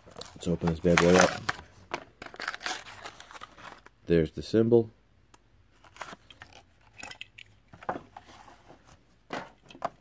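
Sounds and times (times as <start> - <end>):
plastic blister pack crackling: 0.0 - 3.9.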